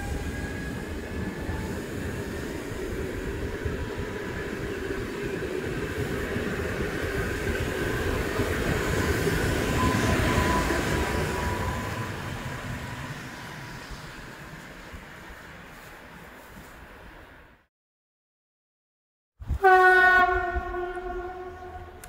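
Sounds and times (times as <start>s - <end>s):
train wheels rumbling on rails: 0.0s - 16.8s.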